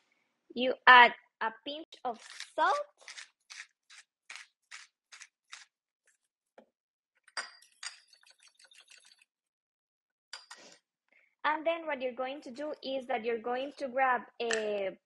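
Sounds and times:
salt grinder crunching: 0:02.2 - 0:05.7
fork scraping and clinking bowl: 0:07.4 - 0:09.2.

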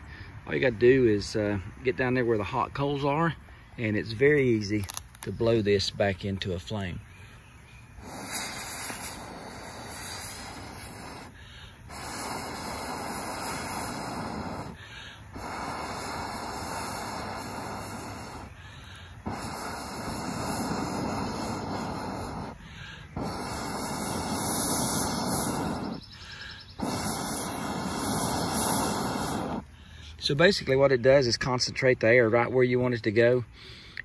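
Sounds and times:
breath blown through bellows tube: 0:08.0 - 0:29.8.

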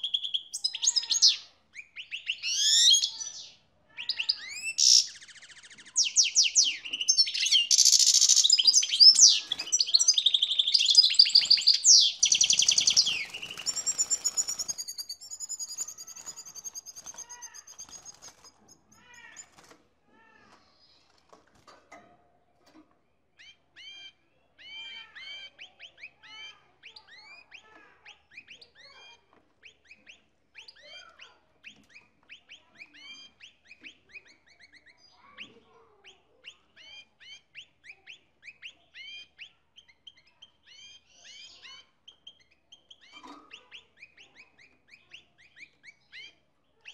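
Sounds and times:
goldfinch twittering song: 0:00.0 - 0:19.6.

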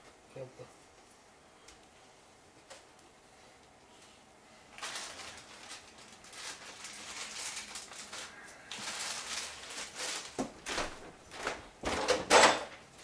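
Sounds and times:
plastic bag crinkling: 0:04.7 - 0:11.6.

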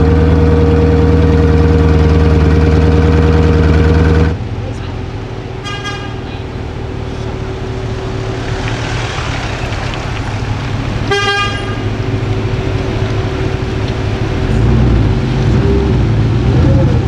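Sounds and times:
car engine running: 0:00.0 - 0:17.0
car horn toot: 0:05.6 - 0:06.5, 0:11.0 - 0:12.0.

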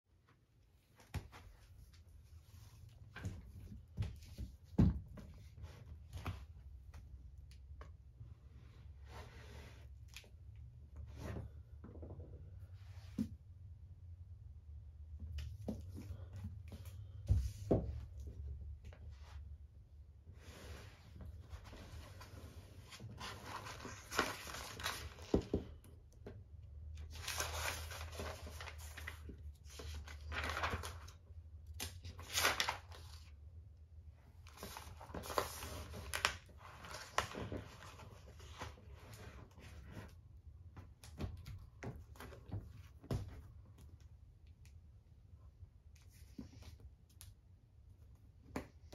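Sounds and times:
book pages turning: 0:20.4 - 0:25.9, 0:27.0 - 0:33.4, 0:34.4 - 0:40.2.

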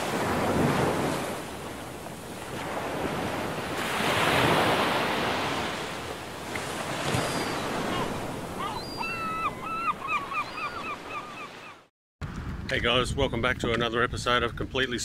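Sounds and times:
ocean waves rushing: 0:00.0 - 0:11.8.

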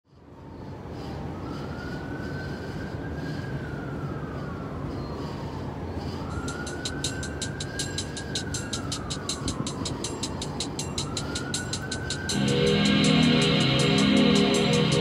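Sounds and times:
low city rumble: 0:00.1 - 0:15.0
emergency vehicle siren wailing: 0:00.7 - 0:15.0
vaporwave beat with hi-hat ticks: 0:06.4 - 0:15.0.

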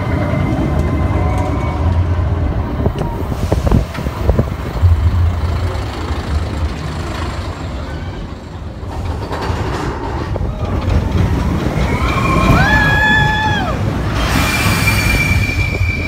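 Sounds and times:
roller coaster rumbling on steel track: 0:00.0 - 0:16.0
high squeal: 0:14.1 - 0:16.0.

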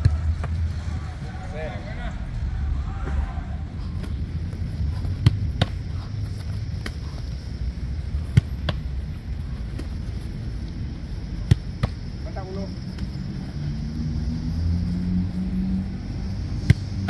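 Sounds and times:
steady low rumble: 0:00.0 - 0:17.0
football slapping into gloves: 0:04.0 - 0:04.2, 0:04.9 - 0:07.4, 0:08.2 - 0:09.0, 0:09.6 - 0:10.3, 0:11.3 - 0:12.3, 0:16.6 - 0:17.0.

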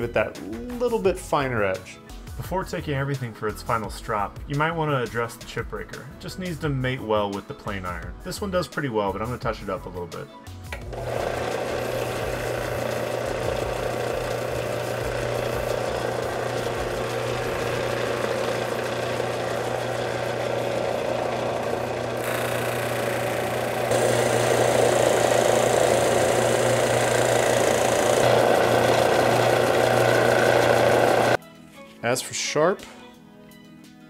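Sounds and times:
power strop motor hum: 0:10.8 - 0:31.4.

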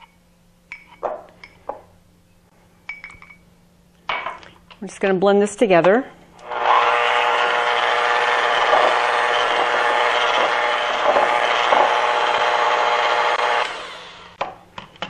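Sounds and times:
electric hand mixer running: 0:06.4 - 0:14.4.

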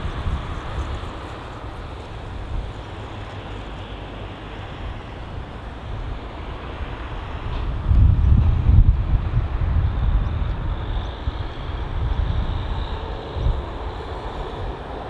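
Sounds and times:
jet engines rushing: 0:00.0 - 0:15.0
wind gusting on microphone: 0:00.0 - 0:15.0.

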